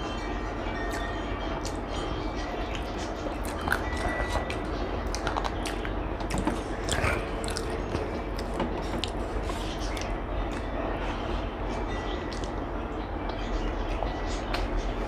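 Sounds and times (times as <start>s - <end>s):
low background rumble: 0.0s - 15.0s
person chewing food: 2.7s - 10.7s.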